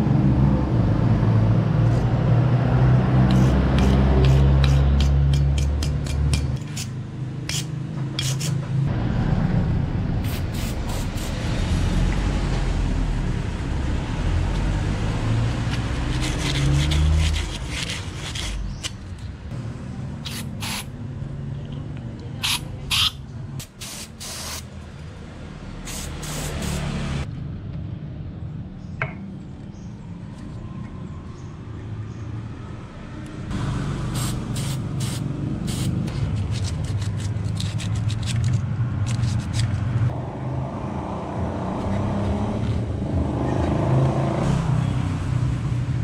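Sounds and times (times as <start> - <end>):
aerosol spray hissing: 10.3 - 11.4, 20.3 - 20.9, 22.4 - 24.7, 25.9 - 26.9, 34.1 - 36.0.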